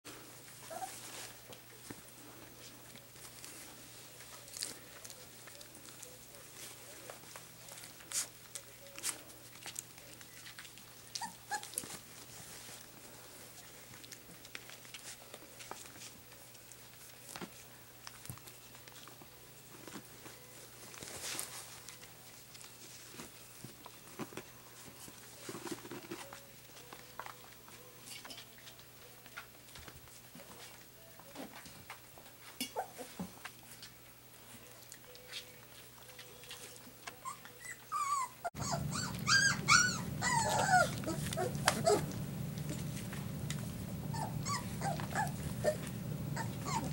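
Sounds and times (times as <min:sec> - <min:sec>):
puppies scuffling: 0:00.1 - 0:46.9
faint steady hum: 0:37.9 - 0:46.9
puppy feet tapping: 0:38.6 - 0:46.9.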